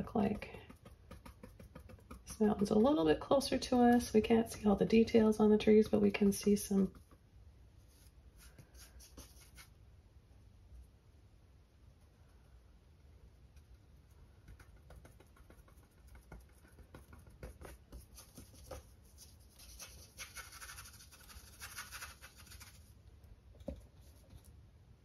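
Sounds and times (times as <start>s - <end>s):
paintbrush scratching on canvas: 0.0s - 3.1s, 7.8s - 9.7s, 13.7s - 22.9s.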